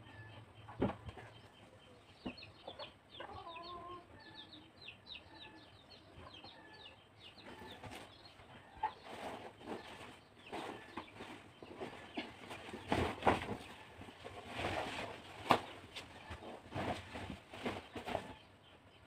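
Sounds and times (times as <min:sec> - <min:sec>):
chicks peeping: 0:00.0 - 0:19.0
bedding rustling: 0:09.0 - 0:18.4.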